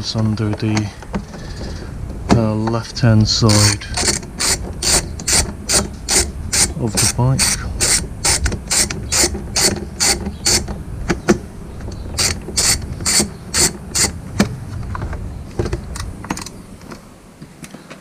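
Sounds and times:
hand ratchet clicking: 3.5s - 10.8s, 12.2s - 14.2s.

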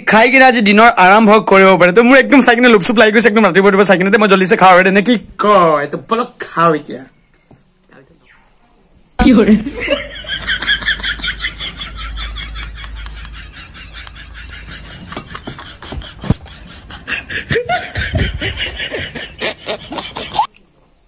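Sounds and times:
high-pitched snickering giggle: 11.5s - 20.5s.

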